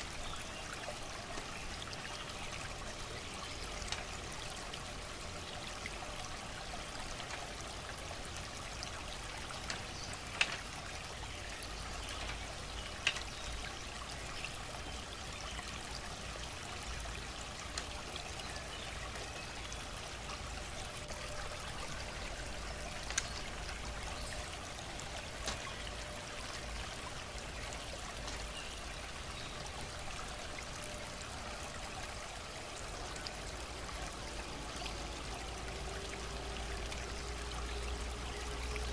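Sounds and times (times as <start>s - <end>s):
trickle of running water: 0.0s - 38.9s
bamboo strips clicking together: 9.6s - 10.7s, 12.2s - 13.3s.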